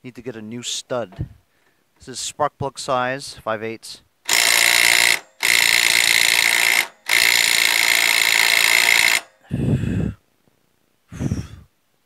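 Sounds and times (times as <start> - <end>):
cordless power tool whirring: 4.3 - 9.7.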